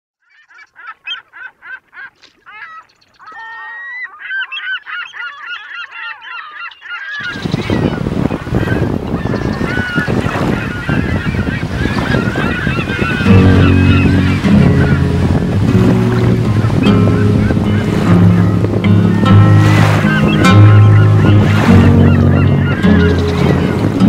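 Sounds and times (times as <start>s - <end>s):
birds calling: 0.2s - 24.0s
surf rushing: 7.2s - 24.0s.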